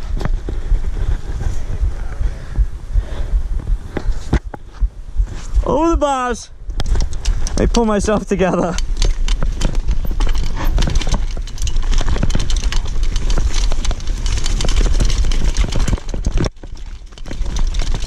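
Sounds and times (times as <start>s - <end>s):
low microphone rumble: 0.0s - 18.0s
mountain bike clattering over rocks: 6.8s - 18.0s.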